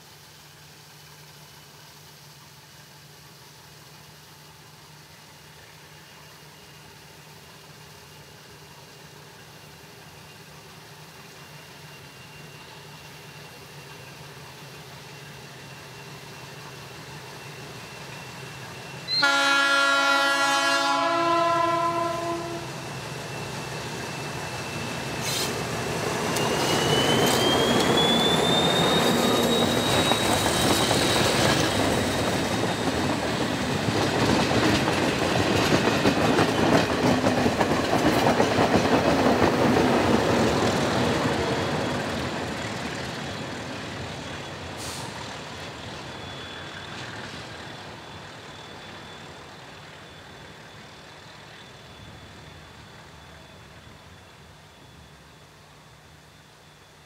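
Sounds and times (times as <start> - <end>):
train engine and wheels on rails: 0.0 - 57.0
locomotive horn: 19.1 - 22.8
high-pitched wheel squeal: 22.3 - 33.3, 44.2 - 54.0.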